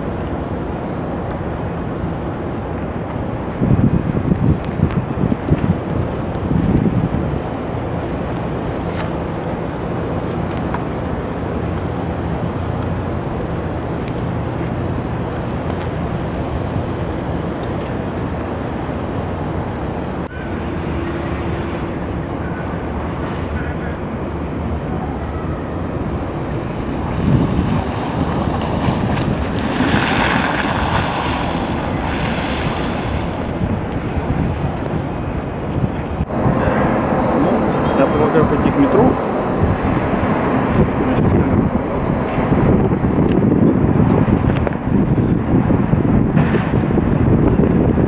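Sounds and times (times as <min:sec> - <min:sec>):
steady low hum: 0:00.0 - 0:48.0
wind rushing over microphone: 0:00.0 - 0:48.0.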